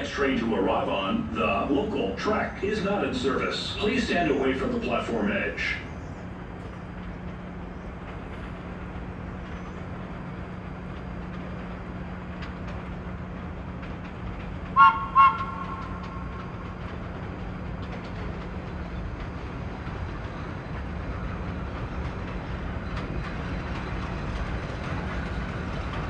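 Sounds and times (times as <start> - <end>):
subway train rumbling: 0.0 - 26.0
train horn blasts: 14.8 - 16.4.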